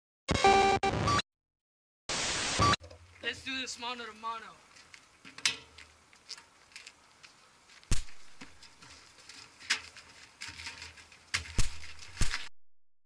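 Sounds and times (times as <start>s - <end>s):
rustling and scraping: 4.6s - 12.5s
hits and thuds of blows: 7.9s - 8.6s, 11.4s - 12.5s.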